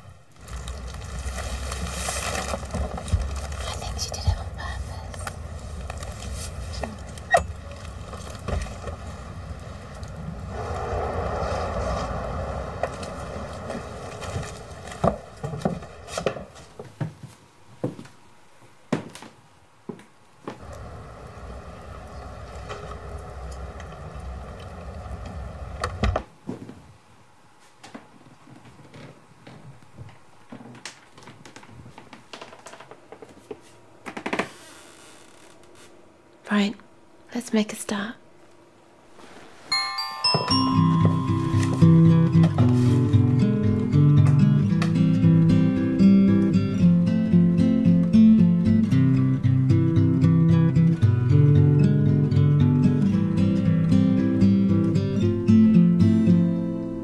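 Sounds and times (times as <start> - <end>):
low street rumble: 0.0 - 16.8, 20.6 - 26.4
hiss: 8.7 - 16.1.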